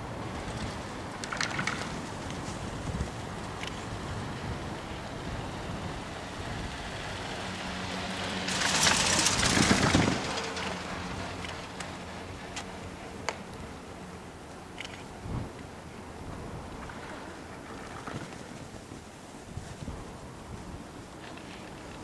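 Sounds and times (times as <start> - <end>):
chairlift rope rumbling: 0.0 - 22.0
rope grip clattering over rollers: 0.2 - 13.1.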